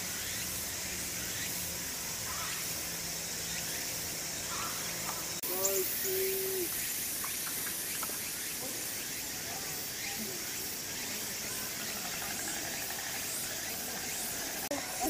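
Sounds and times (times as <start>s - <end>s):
outdoor background hiss: 0.0s - 15.0s
faint distant voices: 8.5s - 15.0s.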